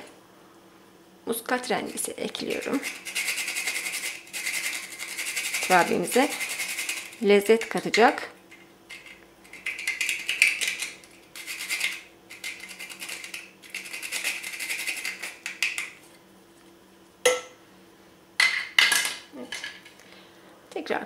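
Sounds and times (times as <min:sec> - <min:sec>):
nutmeg scraping on grater: 0:01.9 - 0:07.8, 0:08.9 - 0:15.5.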